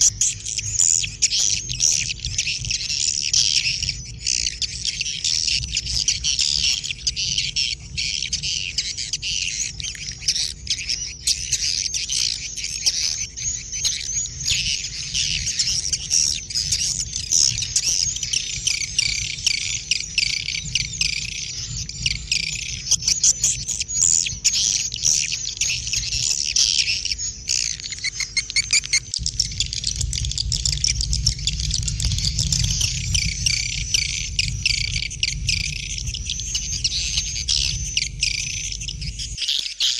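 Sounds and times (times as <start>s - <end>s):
many small birds chirping: 0.0s - 39.9s.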